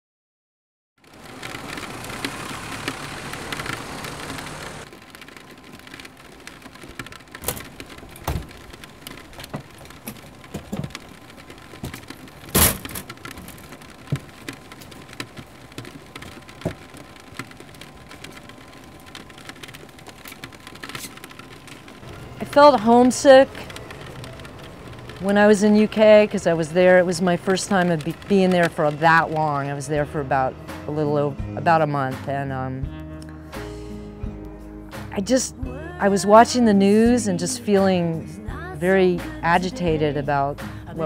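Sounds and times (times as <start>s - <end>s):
raindrops ticking and knocking: 1.0s - 30.4s
rain pattering: 1.0s - 30.5s.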